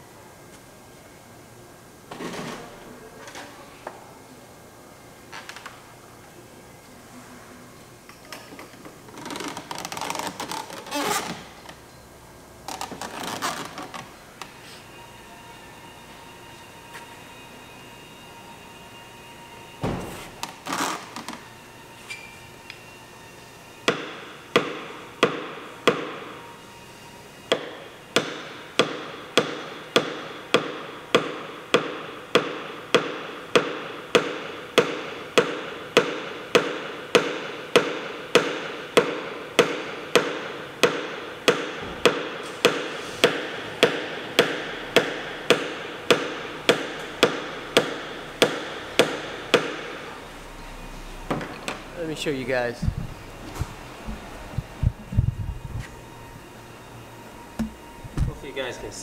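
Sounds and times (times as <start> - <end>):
hammer tapping metal: 27.5 - 50.0.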